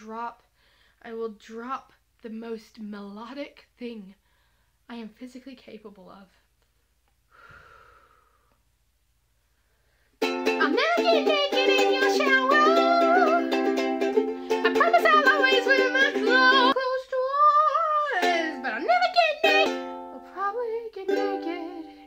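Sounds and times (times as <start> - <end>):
strummed string chords: 10.2 - 16.8
woman singing aggressively: 10.6 - 22.0.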